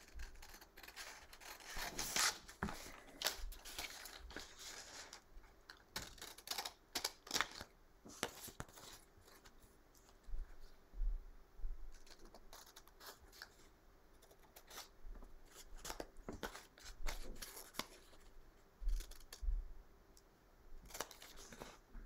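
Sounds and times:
scissors snipping paper: 0.0 - 8.9, 12.0 - 13.6, 14.2 - 14.9, 18.9 - 19.4, 20.8 - 21.8
paper rustling: 0.0 - 10.2, 20.9 - 21.8.

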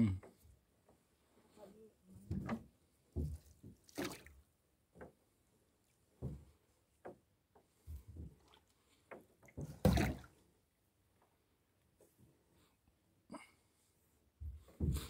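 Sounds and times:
water dripping and splashing: 3.2 - 4.4, 9.4 - 10.4.

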